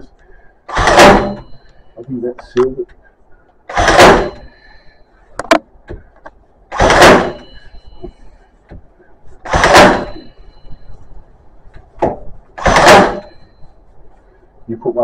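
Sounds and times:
stapler firing into wood: 0.7 - 1.4, 3.7 - 4.4, 6.7 - 7.4, 9.5 - 10.1, 12.0 - 13.3.

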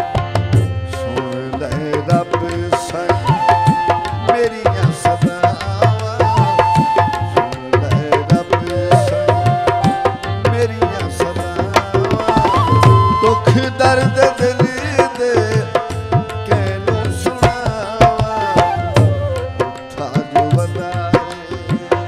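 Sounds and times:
tabla playing quick rhythm: 0.0 - 22.0.

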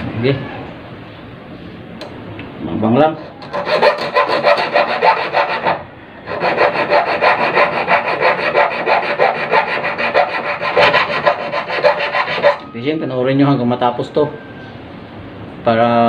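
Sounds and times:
file rasping on metal hook: 3.1 - 12.6.

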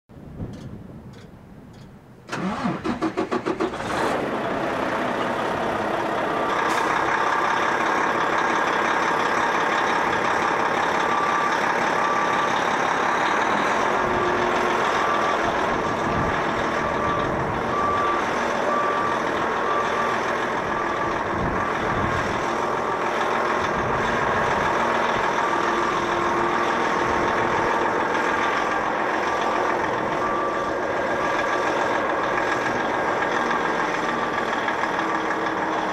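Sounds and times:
diesel truck engine running: 1.1 - 35.9
reversing beeper: 5.8 - 34.4.

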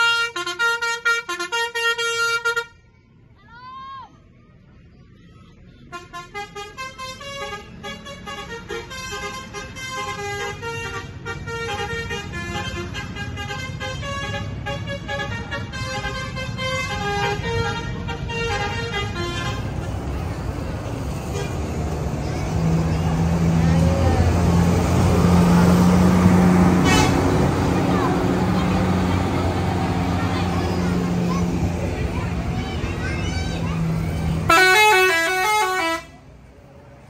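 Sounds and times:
bus horn playing melody: 0.0 - 2.8, 5.9 - 20.1, 21.1 - 21.9, 24.2 - 31.1, 34.3 - 36.2
bus engine running: 4.5 - 37.0.

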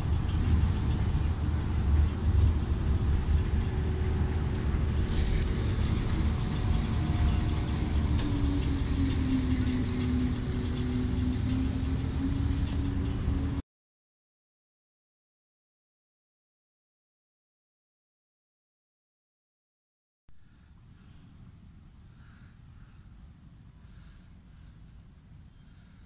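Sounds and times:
boat engine droning: 0.0 - 13.6.

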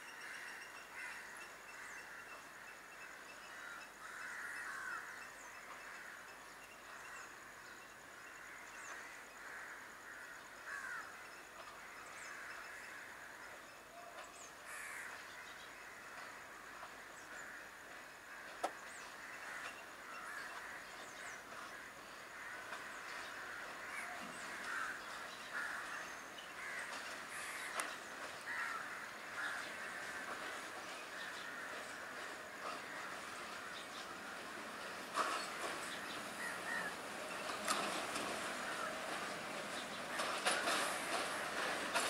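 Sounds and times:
crows cawing: 0.2 - 2.4, 3.5 - 6.3, 8.4 - 13.6, 14.6 - 35.8, 36.4 - 37.1, 38.5 - 39.3.

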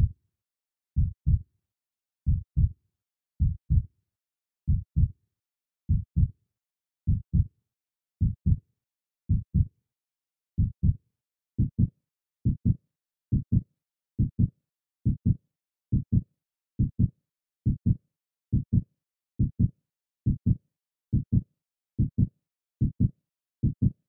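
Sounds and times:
heartbeat thumps: 1.0 - 1.4, 2.3 - 2.7, 3.4 - 3.9, 4.7 - 5.1, 5.9 - 6.3, 7.1 - 7.5, 9.3 - 9.7, 12.6 - 13.6.

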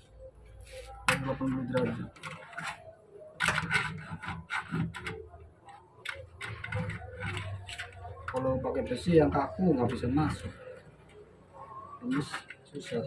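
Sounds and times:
metal wire scraping and clicking: 1.1 - 8.6.

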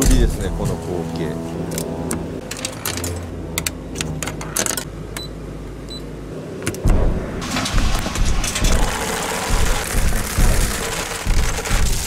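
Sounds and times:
motor hum: 0.0 - 12.0
low rumble: 6.8 - 12.0.

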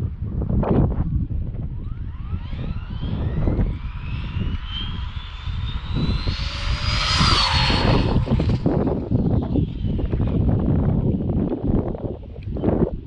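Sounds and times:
wind and tyre rumble: 0.0 - 13.0
electric motor whining: 1.9 - 10.5.

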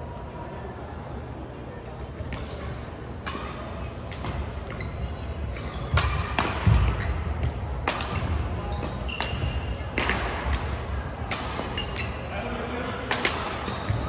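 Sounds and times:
rackets hitting shuttlecock: 2.3 - 4.9, 5.6 - 14.0.

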